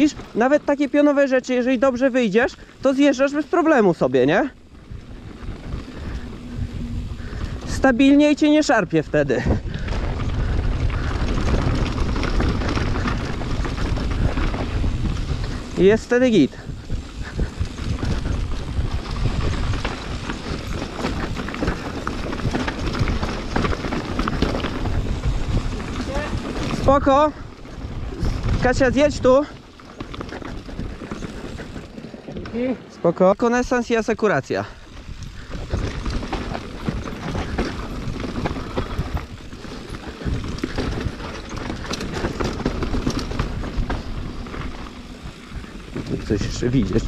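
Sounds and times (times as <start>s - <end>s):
bike rattling over dirt trail: 0.0s - 47.0s
wind on microphone: 4.7s - 8.1s, 9.2s - 29.4s, 34.8s - 47.0s.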